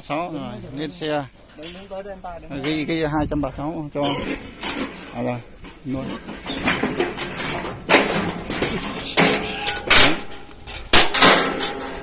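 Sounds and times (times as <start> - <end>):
steel crate and cart rattling: 4.0 - 12.0
sharp metal knocks: 4.1 - 12.0.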